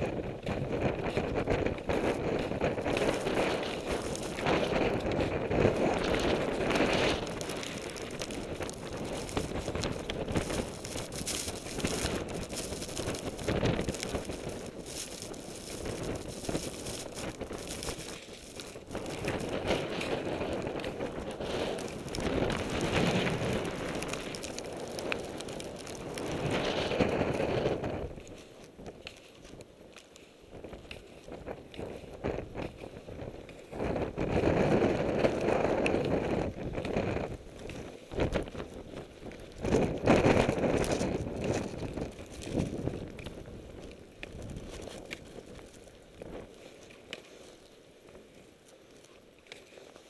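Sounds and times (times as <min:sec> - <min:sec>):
wind buffeting microphone: 0:00.0 - 0:48.2
footsteps crunching in snow: 0:00.0 - 0:50.0.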